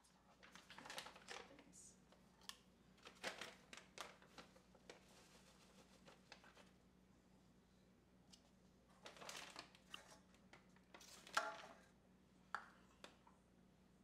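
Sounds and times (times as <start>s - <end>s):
low steady hum: 0.0s - 14.0s
bag rustling and crinkling: 0.3s - 1.6s, 3.0s - 6.8s, 9.0s - 10.2s.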